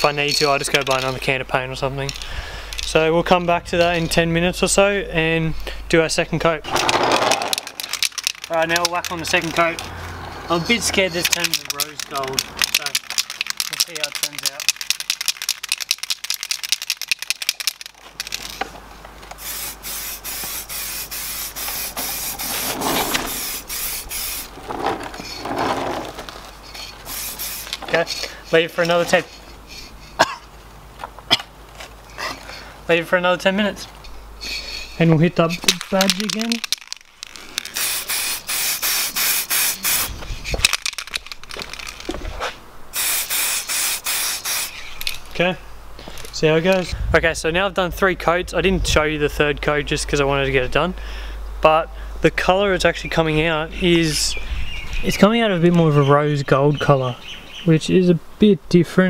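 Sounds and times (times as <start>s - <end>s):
spray can ball rattling: 0.1s - 1.3s, 6.7s - 18.7s, 19.3s - 29.8s, 35.4s - 42.2s, 42.9s - 45.3s
sharp clicks: 6.8s - 9.9s, 11.2s - 18.7s
spray hissing bursts: 19.4s - 25.4s, 26.8s - 28.3s, 37.4s - 40.2s, 42.9s - 44.9s.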